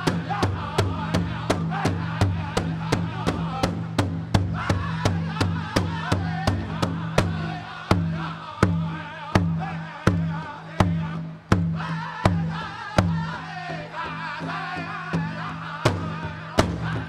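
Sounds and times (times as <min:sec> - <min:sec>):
bass drum beat: 0:00.0 - 0:10.3
voices singing in chorus: 0:00.0 - 0:17.0.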